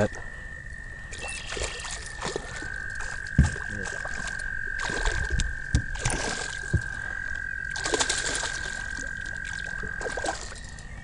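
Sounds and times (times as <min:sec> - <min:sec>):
frogs trilling: 0:00.0 - 0:11.0
fish splashing in water: 0:01.1 - 0:10.8
knocking against boat: 0:03.4 - 0:03.6, 0:05.3 - 0:06.0, 0:06.6 - 0:06.9.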